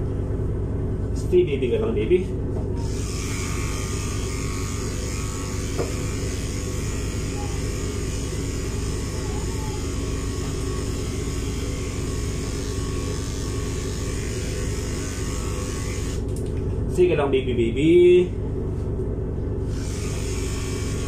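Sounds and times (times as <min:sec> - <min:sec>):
electric clipper humming: 0:02.8 - 0:16.6, 0:19.7 - 0:21.0.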